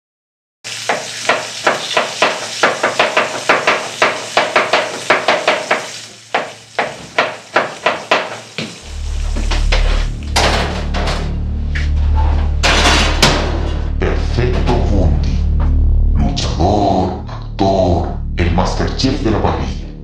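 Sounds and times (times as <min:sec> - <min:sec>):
deep bass music: 0:08.8 - 0:20.0.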